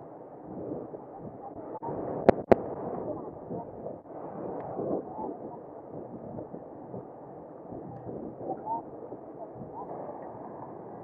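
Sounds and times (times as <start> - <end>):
muffled wind: 0.0 - 11.0
faint indistinct voices: 2.8 - 11.0.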